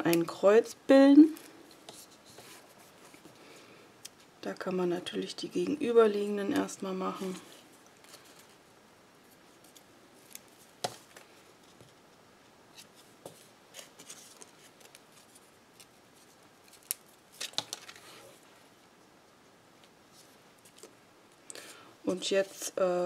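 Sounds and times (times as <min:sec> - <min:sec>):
soft paper rustles: 0:01.3 - 0:03.4, 0:06.6 - 0:08.6, 0:09.2 - 0:18.7, 0:19.8 - 0:21.0.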